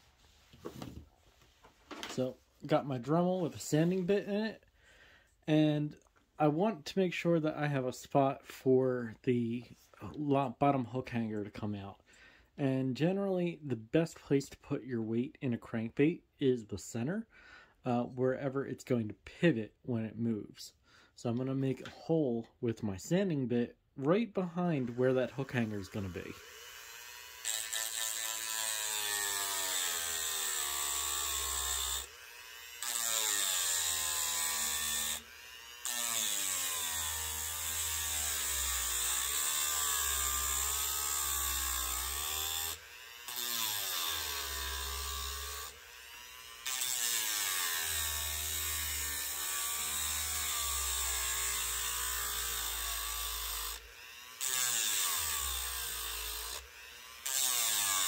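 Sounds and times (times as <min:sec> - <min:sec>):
rotary tool grinding wood: 0:24.6 - 0:58.0.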